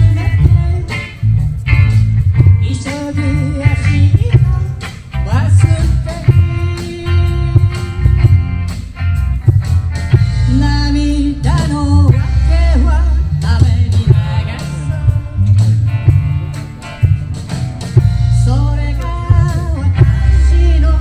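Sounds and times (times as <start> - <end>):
person singing: 0.0 - 1.2, 2.4 - 8.2, 10.4 - 15.8, 18.3 - 21.0
live band music over speakers: 0.0 - 21.0.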